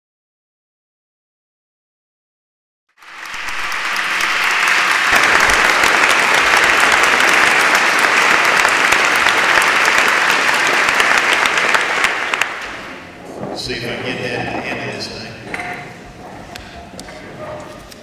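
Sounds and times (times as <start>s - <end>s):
audience applauding: 3.0s - 13.2s.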